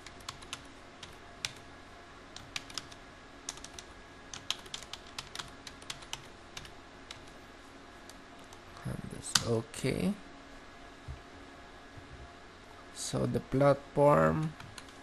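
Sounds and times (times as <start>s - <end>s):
keyboard typing clicks: 2.4s - 7.3s.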